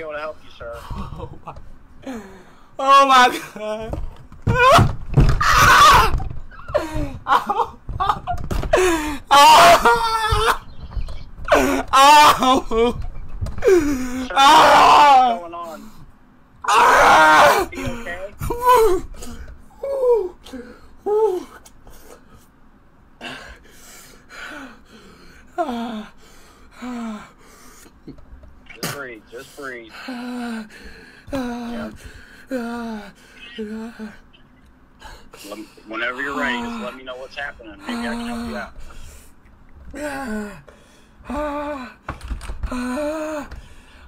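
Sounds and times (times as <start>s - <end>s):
young man wailing in pain: 2.8s - 10.7s, 11.4s - 15.8s, 16.6s - 21.6s, 25.5s - 26.2s, 31.3s - 34.3s, 37.8s - 38.8s, 39.9s - 42.0s, 42.6s - 43.6s
man gasping and groaning: 39.9s - 44.0s.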